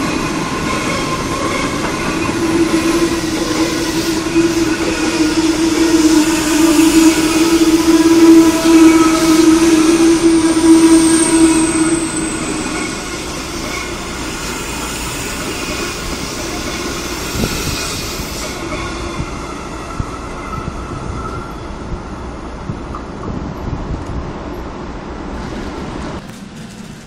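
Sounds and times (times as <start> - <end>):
rail clicks: 0.0 - 27.0
train rolling along rails: 0.0 - 27.0
high whine: 1.9 - 14.0
steady tone: 2.1 - 14.0.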